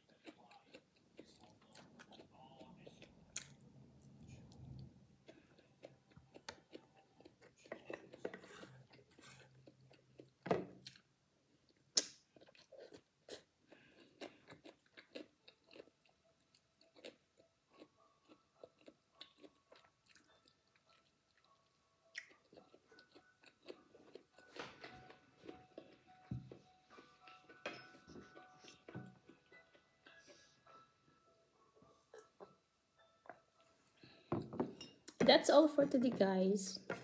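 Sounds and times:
person chewing food: 0:00.0 - 0:30.9, 0:31.6 - 0:35.2.

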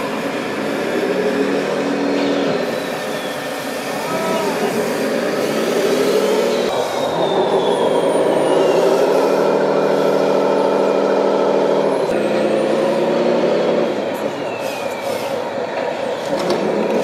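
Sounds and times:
model truck motors humming: 0:09.2 - 0:14.4.

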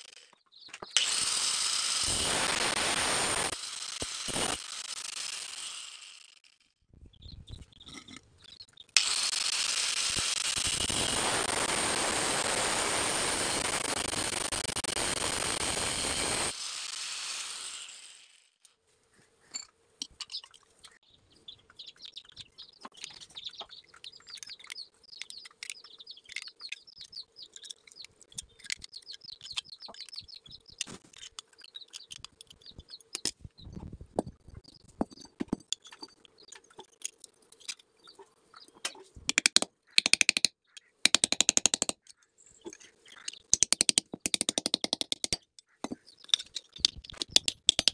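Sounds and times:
angle grinder cutting pipe: 0:00.9 - 0:06.4, 0:09.0 - 0:18.5
grinder disc spinning down: 0:01.0 - 0:06.4, 0:09.0 - 0:18.4
faint birds chirping: 0:06.9 - 0:09.0, 0:18.9 - 0:41.1, 0:42.0 - 0:43.6, 0:45.4 - 0:47.4.

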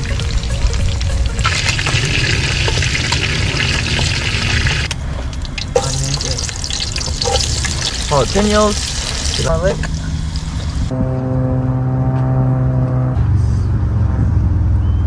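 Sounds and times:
food frying in hot oil: 0:00.0 - 0:10.9
low rumble: 0:00.0 - 0:15.0.

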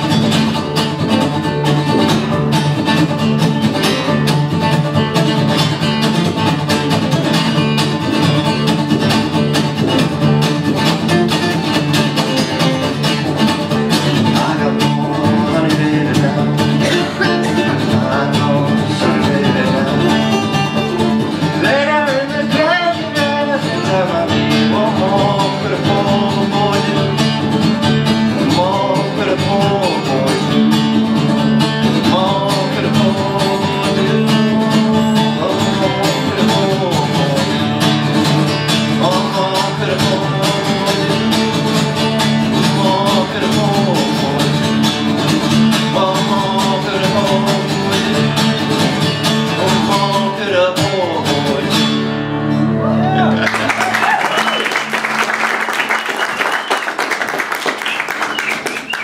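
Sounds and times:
banjo picked: 0:00.0 - 0:53.6
upright bass: 0:00.0 - 0:56.2
acoustic guitars strummed: 0:00.0 - 0:59.0
man singing: 0:13.6 - 0:52.2.

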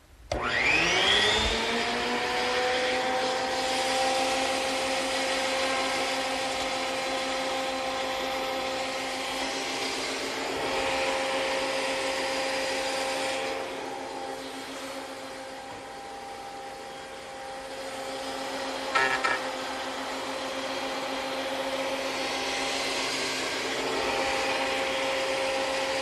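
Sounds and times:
planer motor whine: 0:00.3 - 0:26.0.

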